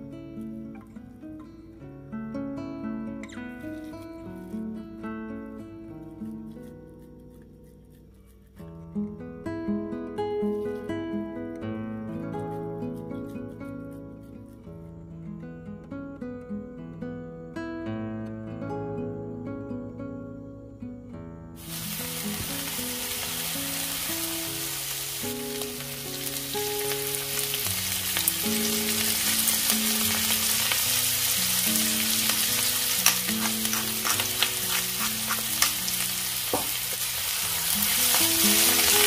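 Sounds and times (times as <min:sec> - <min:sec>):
cabbage sizzling in oil: 0:21.6 - 0:39.0
wooden spatula knocking pan: 0:36.5 - 0:37.0.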